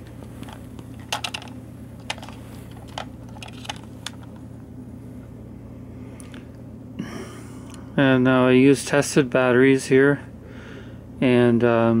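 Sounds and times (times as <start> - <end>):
steady low hum: 0.0 - 12.0
batteries clicking in plastic compartment: 0.4 - 4.4.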